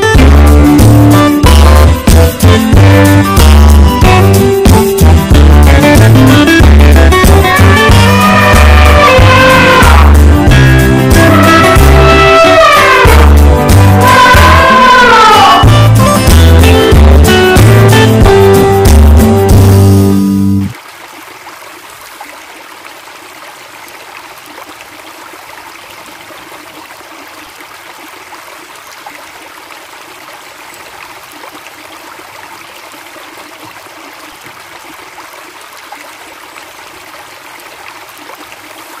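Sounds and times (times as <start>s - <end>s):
waterfall rushing: 7.1s - 16.0s.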